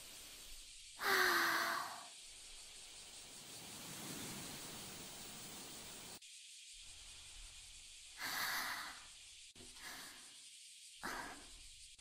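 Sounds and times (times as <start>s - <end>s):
girl's breathy sigh: 1.0s - 2.1s.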